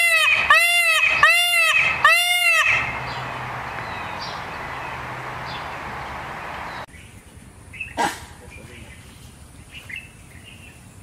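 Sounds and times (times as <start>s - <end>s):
peacock calling: 0.0s - 6.9s
steady background hiss: 2.8s - 11.0s.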